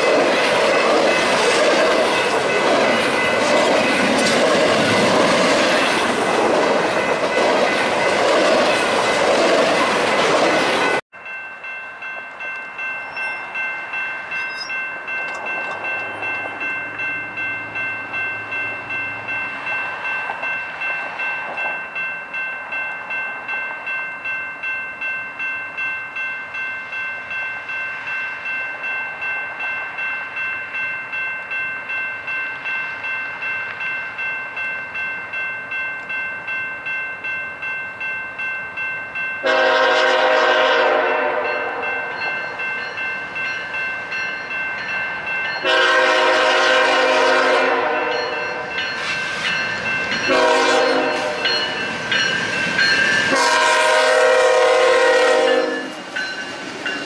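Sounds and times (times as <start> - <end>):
railroad crossing bell ringing: 0.0 - 57.0
locomotive air horn: 39.4 - 41.8, 45.6 - 48.4, 50.3 - 51.7, 53.3 - 55.9.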